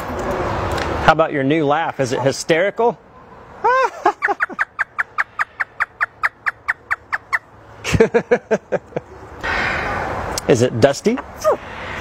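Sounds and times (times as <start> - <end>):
parrot cackling laugh: 3.6 - 9.2.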